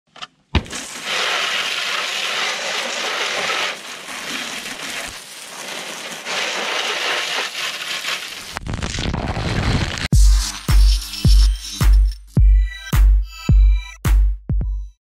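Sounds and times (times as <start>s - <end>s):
water spray hissing off tires: 0.6s - 8.6s.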